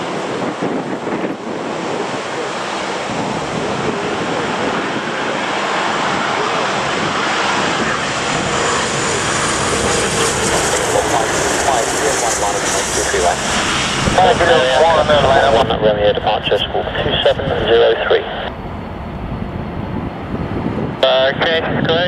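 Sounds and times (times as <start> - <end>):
high jet whine: 0.0 - 22.0
jet engines approaching: 0.0 - 22.0
wind rumbling on microphone: 0.0 - 22.0.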